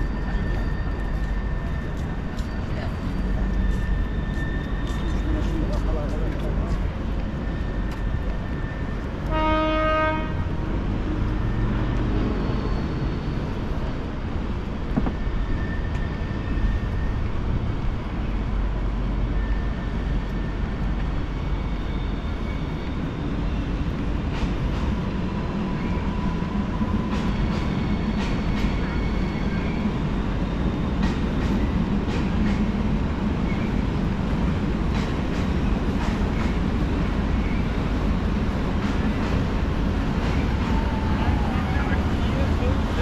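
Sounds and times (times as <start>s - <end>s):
train rumbling across steel bridge: 0.0s - 43.0s
train horn blast: 9.2s - 10.8s.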